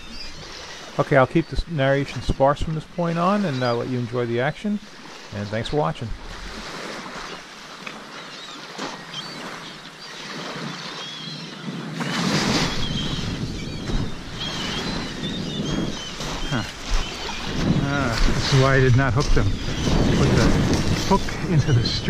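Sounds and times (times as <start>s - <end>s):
wind buffeting microphone: 11.8s - 22.0s.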